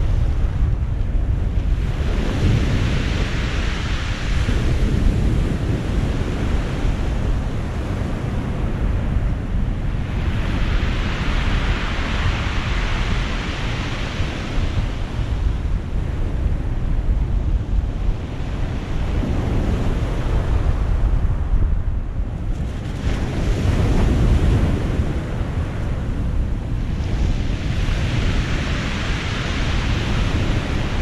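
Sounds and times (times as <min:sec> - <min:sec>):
wind buffeting microphone: 0:00.0 - 0:31.0
surf washing up pebble beach: 0:09.7 - 0:16.0, 0:22.7 - 0:31.0.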